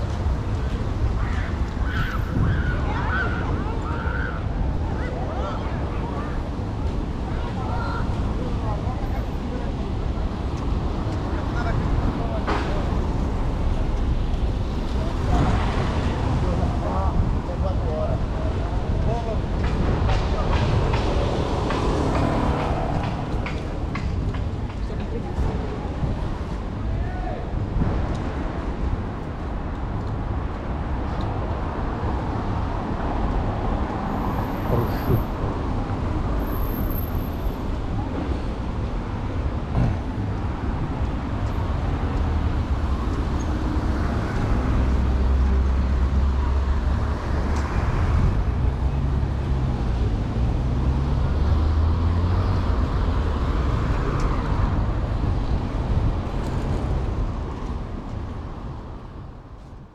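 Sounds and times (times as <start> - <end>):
road traffic passing: 0.0 - 59.9
heavy vehicle engine rumble: 33.3 - 47.5.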